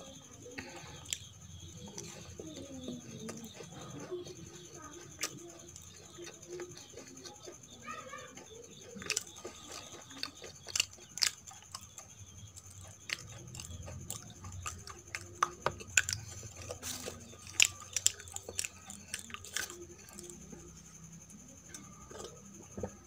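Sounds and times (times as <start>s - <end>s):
close chewing with mouth clicks: 0.1s - 23.0s.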